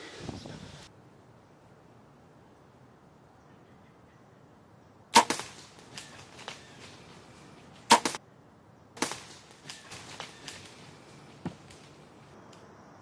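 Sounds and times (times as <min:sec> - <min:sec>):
bowstring and arrow crack: 0:05.2 - 0:07.1, 0:07.7 - 0:08.2, 0:09.0 - 0:12.7
rustling in dry leaves: 0:05.2 - 0:08.2, 0:09.0 - 0:12.4.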